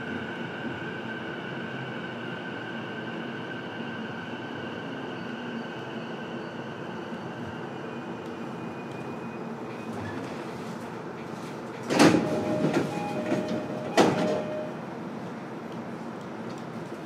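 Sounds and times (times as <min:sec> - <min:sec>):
train equipment hum: 0:06.8 - 0:17.0
brief ringing tone: 0:12.4 - 0:14.8.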